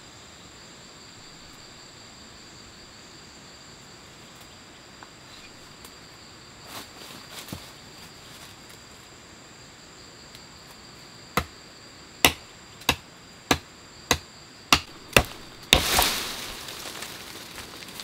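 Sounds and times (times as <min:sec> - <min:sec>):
insects whining: 0:00.0 - 0:18.0
leaves rustling: 0:05.2 - 0:09.1, 0:14.9 - 0:18.0
machete chopping sapling: 0:12.2 - 0:17.7.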